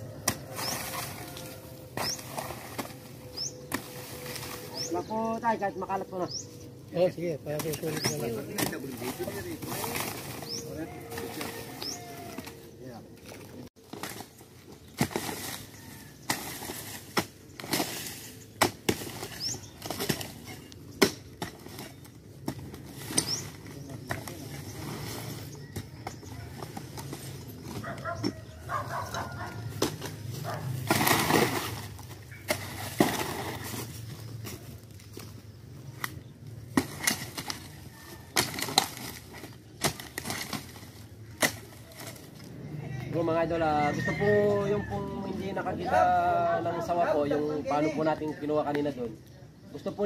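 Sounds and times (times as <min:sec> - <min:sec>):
mattock chopping into soil and wood: 0:00.1 - 0:04.9, 0:07.5 - 0:12.6, 0:13.8 - 0:24.8, 0:25.7 - 0:35.3, 0:35.9 - 0:42.2.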